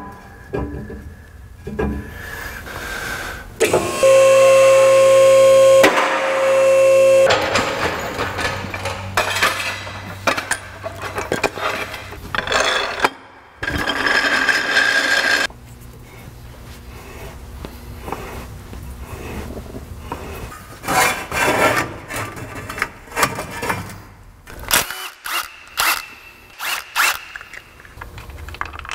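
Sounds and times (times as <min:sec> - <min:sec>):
pneumatic tool running: 0:03.6 - 0:09.2, 0:24.5 - 0:27.8.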